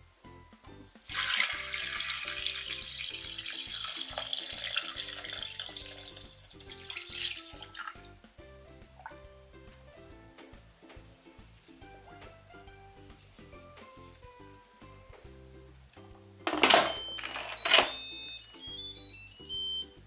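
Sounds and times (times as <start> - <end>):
soft background music: 0.0 - 20.0
water pouring and splashing: 1.0 - 8.2.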